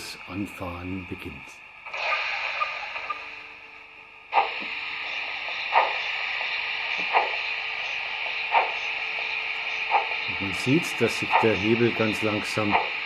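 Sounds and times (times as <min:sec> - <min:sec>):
steam hiss: 0:01.8 - 0:03.5, 0:04.3 - 0:13.0
steam locomotive exhaust chuffs: 0:04.2 - 0:13.0.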